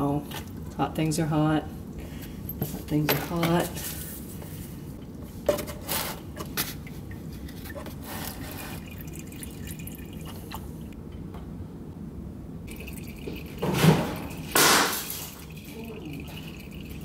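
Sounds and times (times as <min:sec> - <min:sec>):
oil trickling into a jug: 0:07.0 - 0:10.9, 0:12.7 - 0:17.0.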